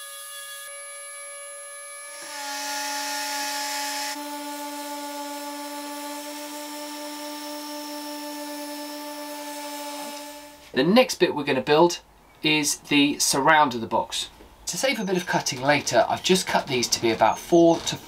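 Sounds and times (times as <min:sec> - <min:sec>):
orbital sander on wood: 0:00.0 - 0:10.6.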